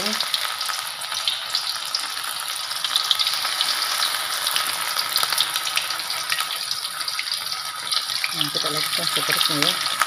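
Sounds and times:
fish deep-frying in oil: 0.0 - 10.0.

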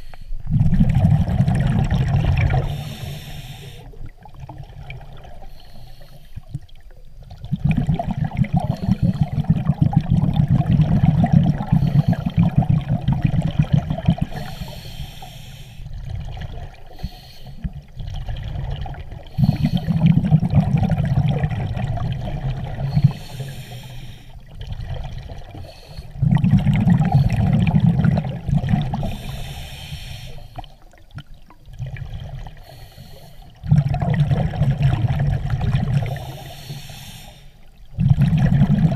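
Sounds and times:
bubbling exhalation underwater: 0.5 - 2.9, 7.2 - 14.5, 17.7 - 23.2, 26.2 - 29.3, 33.6 - 36.3, 37.9 - 38.9
regulator hiss: 2.7 - 4.0, 14.3 - 15.9, 29.1 - 30.6.

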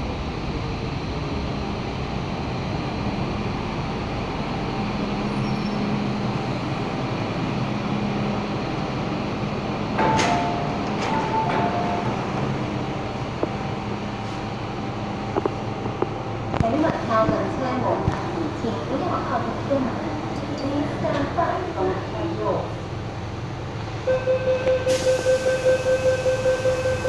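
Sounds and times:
train running hum: 0.0 - 27.0
doors opening with a rush: 9.9 - 13.3
two-tone door chime: 10.0 - 12.3, 24.1 - 27.0.

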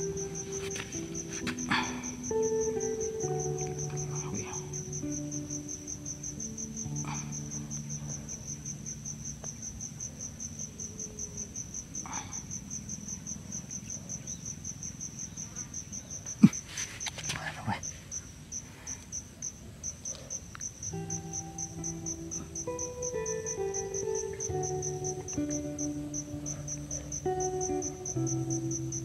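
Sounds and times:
insect chirring: 0.0 - 29.0
soft handling rustles: 0.4 - 1.7.

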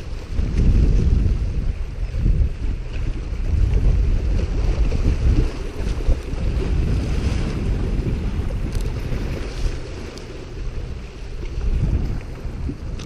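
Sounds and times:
small waves washing against rocks: 0.0 - 13.0
wind buffeting microphone: 0.0 - 13.0.

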